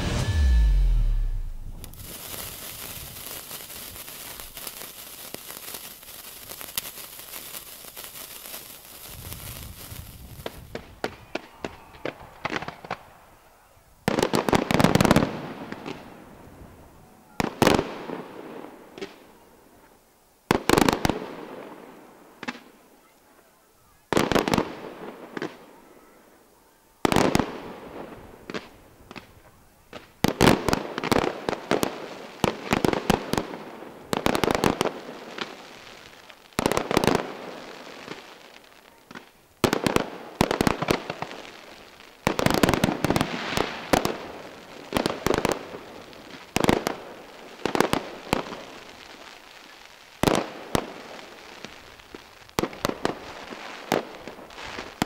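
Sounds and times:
firework bangs echoing: 0.0s - 5.6s, 9.0s - 13.5s.

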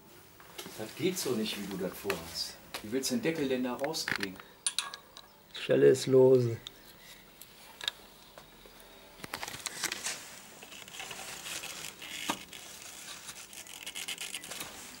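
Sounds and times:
rubber hose rustling and scraping: 9.3s - 15.0s.

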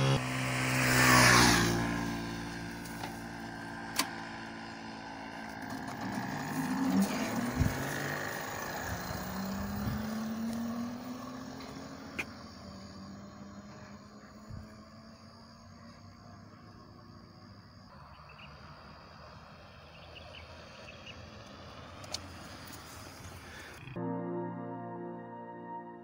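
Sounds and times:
electric motorcycle motor hum: 0.0s - 24.0s
wind rushing on microphone: 7.4s - 8.0s, 8.8s - 10.3s.

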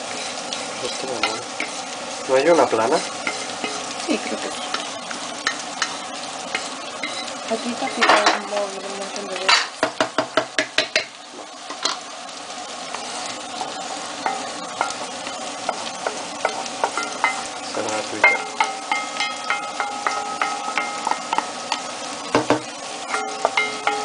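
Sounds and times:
vegetables sizzling in oil: 0.0s - 24.0s
wooden spoon knocking on pans: 7.8s - 8.7s, 9.3s - 12.0s, 14.2s - 17.5s, 18.2s - 24.0s.

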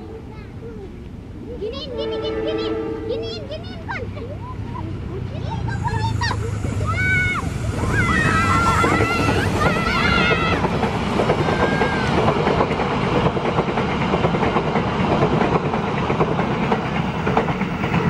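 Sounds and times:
train wheels rumbling on rails: 0.2s - 18.0s.

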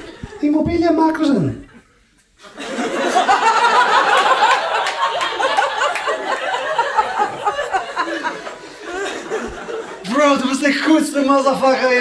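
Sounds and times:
audience laughing loudly: 2.4s - 10.2s.

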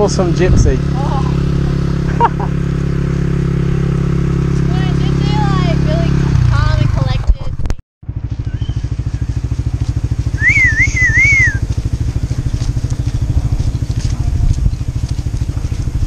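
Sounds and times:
loud pulsing low rumble: 0.0s - 16.0s
wavering whistle: 10.3s - 11.7s.

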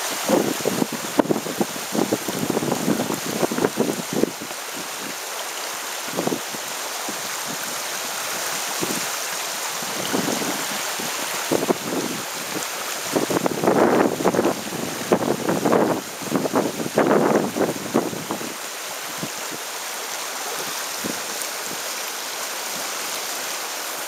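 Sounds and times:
low wind buffeting: 0.0s - 5.2s, 5.8s - 19.6s
creek water flowing over stones: 0.0s - 24.0s.

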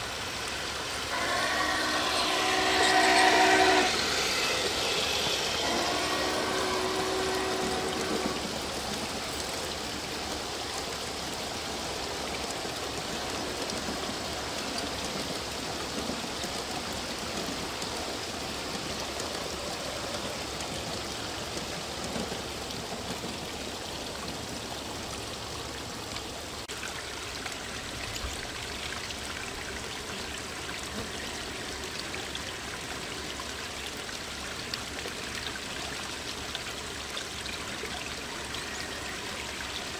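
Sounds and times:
small waterfall trickling: 0.0s - 39.9s
toy steam locomotive whistle: 1.0s - 8.8s.

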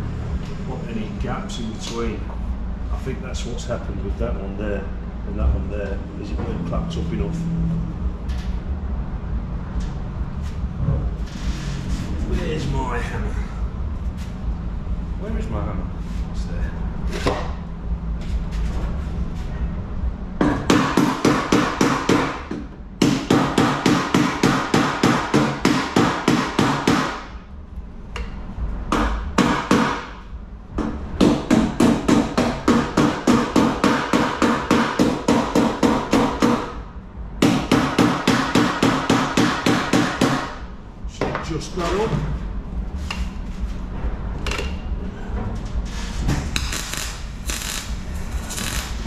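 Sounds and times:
hammer tapping on sheet metal: 20.4s - 27.3s, 30.8s - 36.7s, 37.4s - 40.5s.

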